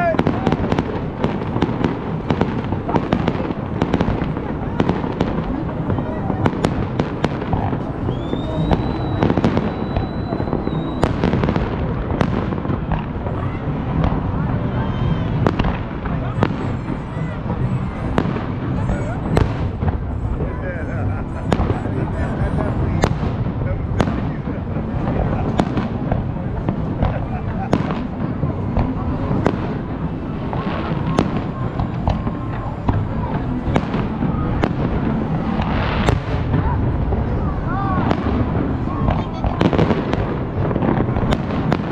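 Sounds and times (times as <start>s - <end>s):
background noise: 0.0s - 41.9s
fireworks bangs: 0.0s - 41.9s
low rumble of fireworks: 0.0s - 41.9s
high firework whistle: 7.9s - 11.8s.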